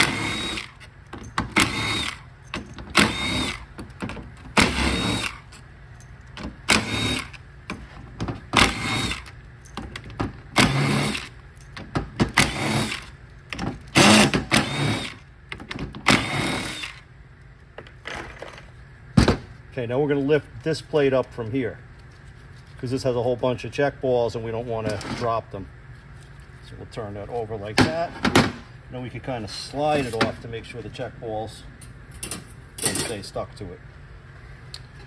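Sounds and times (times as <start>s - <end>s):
power driver whining: 0.0s - 5.7s, 6.3s - 17.1s.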